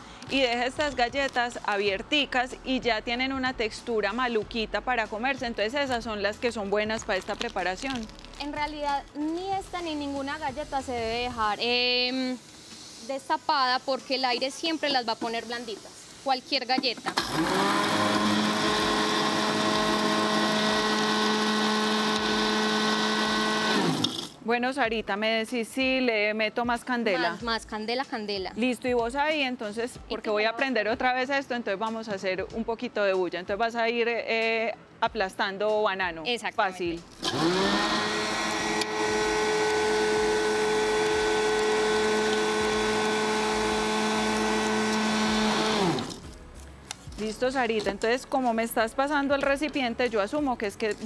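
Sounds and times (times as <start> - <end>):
electric food chopper running: 17.1 - 24.4, 37.2 - 46.3.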